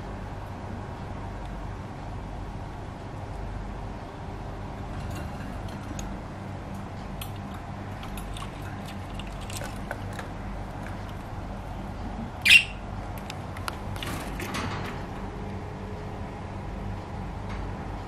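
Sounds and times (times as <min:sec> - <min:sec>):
steady low hum: 0:00.0 - 0:18.0
budgerigars chirping: 0:12.4 - 0:12.8
loud sharp bird squawk: 0:12.4 - 0:12.8.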